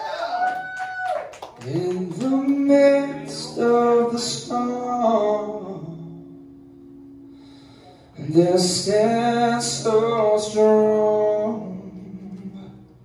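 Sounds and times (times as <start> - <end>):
acoustic guitars: 1.3 - 13.0
person singing: 1.6 - 6.6, 8.1 - 13.0.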